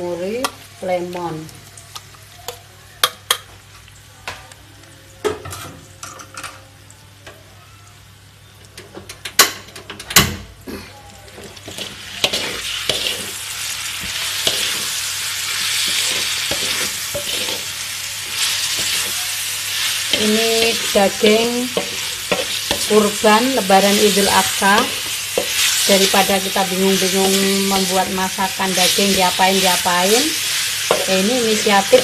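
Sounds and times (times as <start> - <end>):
meat sizzling: 11.3 - 32.0.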